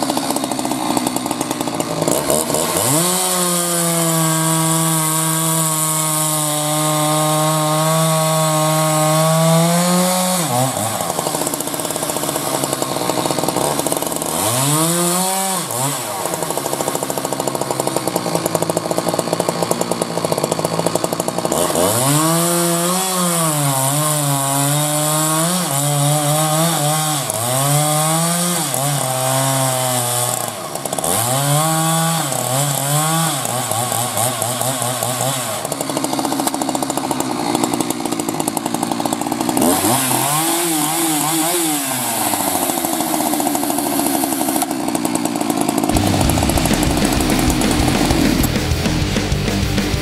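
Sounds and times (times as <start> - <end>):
chainsaw cutting a log: 0.0 - 50.0.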